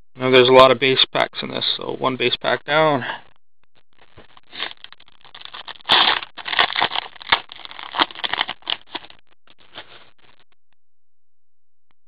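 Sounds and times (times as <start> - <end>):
foil wrapper crinkling: 4.0 - 10.4.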